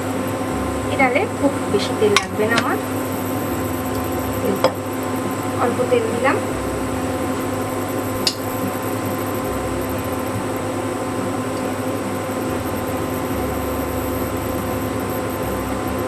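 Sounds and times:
cooling fan whirring: 0:00.0 - 0:16.0.

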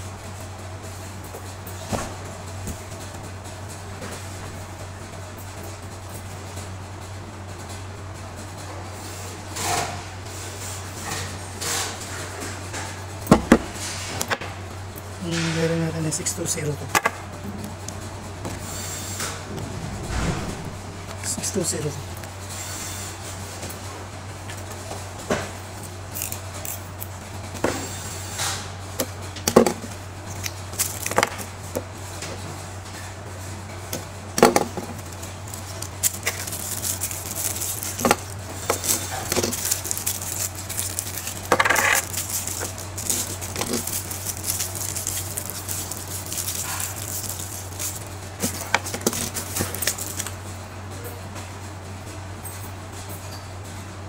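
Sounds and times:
steady low hum: 0:00.0 - 0:54.0
plastic crinkling: 0:29.6 - 0:31.8, 0:34.4 - 0:50.4.

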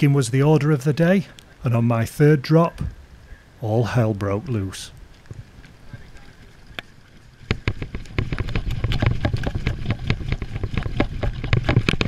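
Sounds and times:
low rumble of handling: 0:02.7 - 0:12.0.

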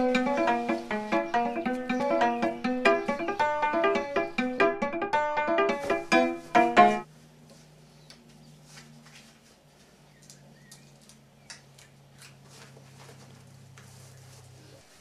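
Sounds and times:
clothing rustling: 0:12.4 - 0:15.0.

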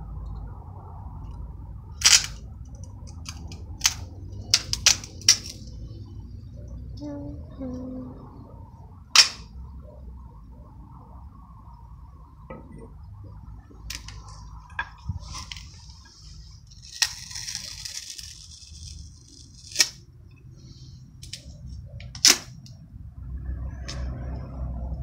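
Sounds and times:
tape peeling off roll: 0:15.2 - 0:20.0
tape snaps and clicks: 0:16.9 - 0:20.0.

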